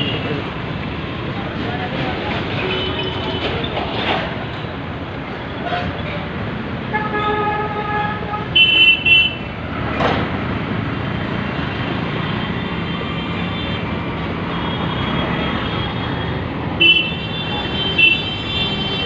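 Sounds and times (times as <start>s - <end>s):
street traffic engines and tyres: 0.0s - 19.0s.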